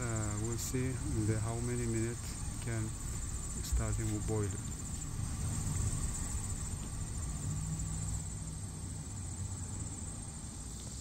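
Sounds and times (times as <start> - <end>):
low rumble: 0.0 - 10.0
insects trilling: 0.0 - 11.0.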